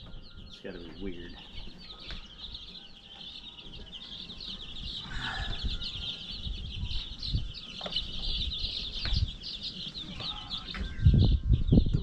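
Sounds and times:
chicks peeping: 0.0 - 12.0.

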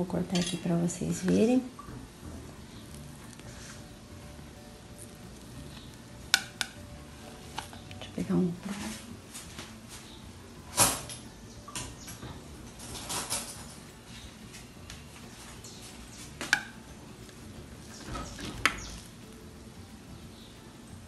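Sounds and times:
cutlery clicking on a plate: 16.4 - 16.7.

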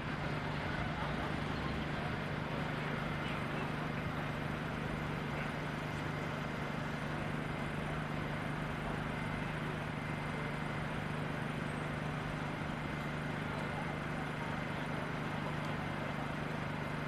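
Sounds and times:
diesel engines idling: 0.0 - 17.0.

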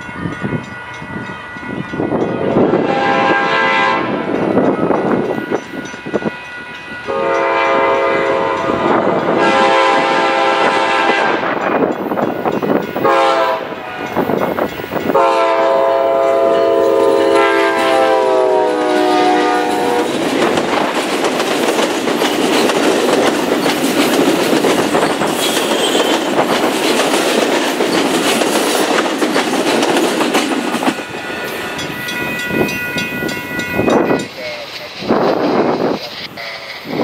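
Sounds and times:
train cars rumbling past: 0.0 - 37.0
locomotive horn blast: 2.6 - 4.3, 7.1 - 11.6, 13.0 - 14.2, 15.1 - 20.2, 25.4 - 26.3.

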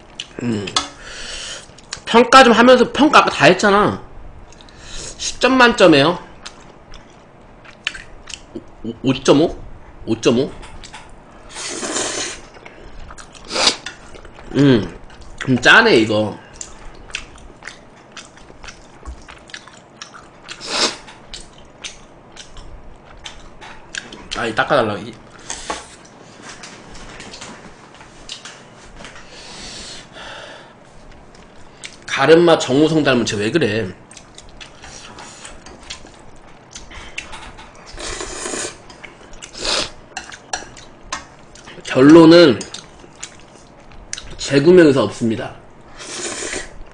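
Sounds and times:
wet chewing with mouth clicks: 6.4 - 8.8, 16.5 - 24.4, 34.1 - 41.8, 42.6 - 44.4
slurping noodles: 11.5 - 12.5, 13.4 - 13.9, 37.9 - 38.8, 39.5 - 40.0, 45.9 - 46.8.

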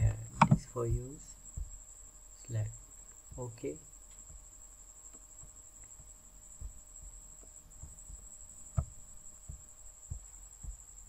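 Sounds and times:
faint microphone hum: 0.0 - 11.0
soft low thumps: 0.0 - 11.0.

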